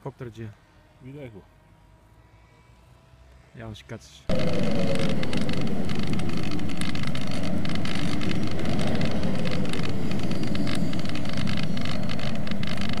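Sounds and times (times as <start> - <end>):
electric motor and propeller: 0.1 - 13.0
wind rush: 4.3 - 13.0.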